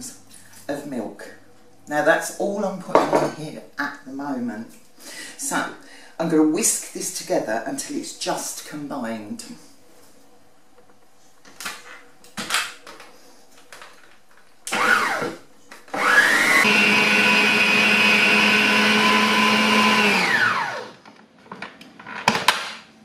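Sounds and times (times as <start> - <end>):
stand mixer motor whisking: 16.0 - 20.9.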